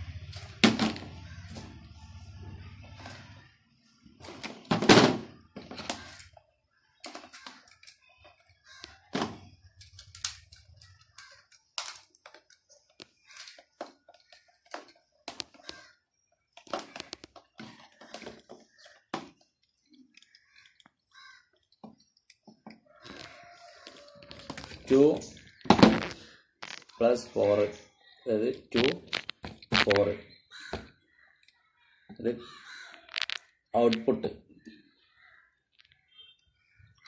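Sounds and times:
loud clack of plastic parts: 4.2 - 6.4, 9.1 - 15.8, 16.5 - 19.5
small clicks and knocks of tools: 5.7 - 9.0, 9.6 - 24.9.

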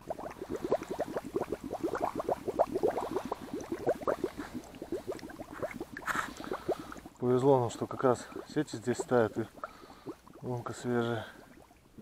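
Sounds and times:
short rising bubble chirps: 0.0 - 7.2
water gurgling and bubbling: 0.0 - 12.0.

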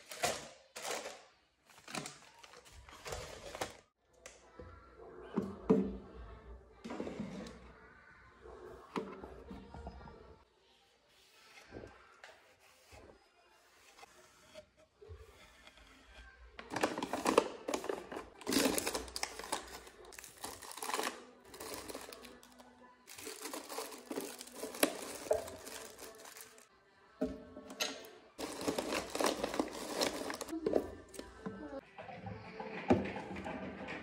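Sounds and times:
background music: 16.6 - 34.0
plastic packaging crinkling: 16.7 - 26.7, 28.4 - 30.5.

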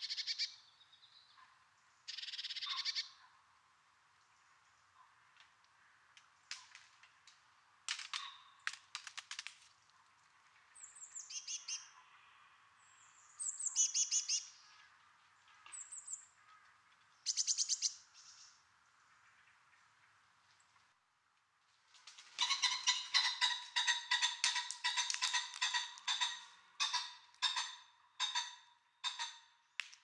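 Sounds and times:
small birds singing and chirping: 10.7 - 12.0, 12.8 - 14.8, 17.1 - 18.6.

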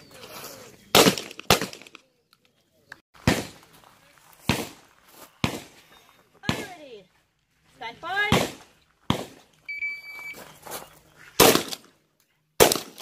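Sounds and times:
shotgun shots: 0.9 - 2.0, 8.3 - 9.4, 11.4 - 11.9, 12.6 - 13.0.

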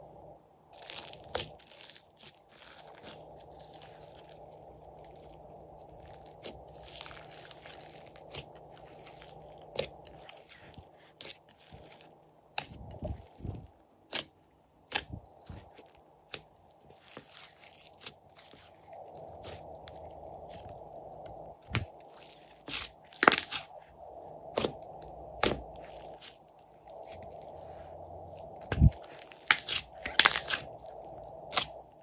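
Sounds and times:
slime sticky pops and crackles: 14.9 - 15.1, 29.4 - 30.6, 31.5 - 31.7.

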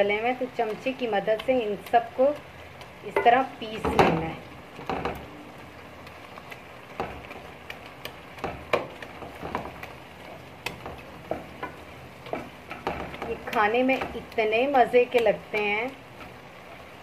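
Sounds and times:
faint steady sizzle: 0.0 - 17.0.

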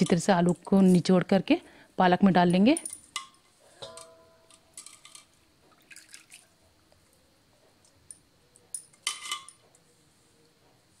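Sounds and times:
metallic ring of steel bowl: 3.8 - 4.7
water squelching and dripping: 5.7 - 7.2.

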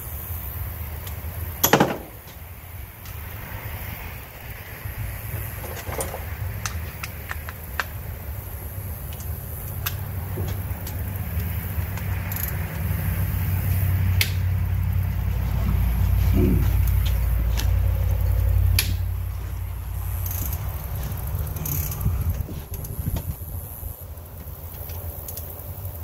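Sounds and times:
ratchet and hand tools clicking: 9.0 - 14.4, 20.0 - 23.4
low rumble: 10.0 - 24.3.

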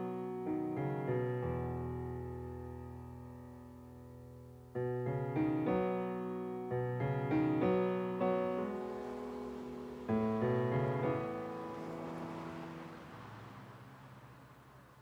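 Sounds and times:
piano chords ringing out: 0.0 - 13.4.

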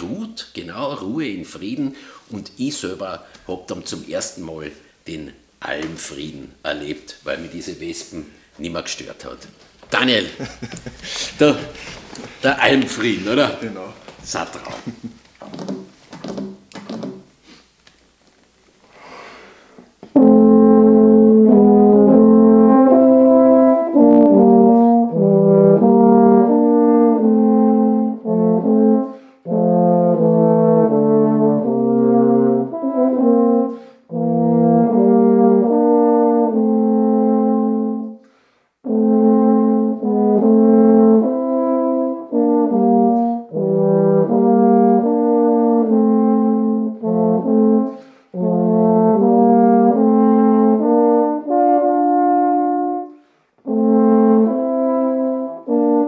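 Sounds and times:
tenor horns playing a duet: 20.1 - 38.2, 38.8 - 56.0.

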